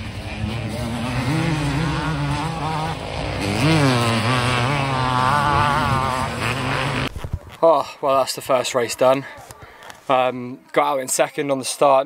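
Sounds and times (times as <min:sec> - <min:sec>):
motocross bikes revving: 0:00.0 - 0:07.6.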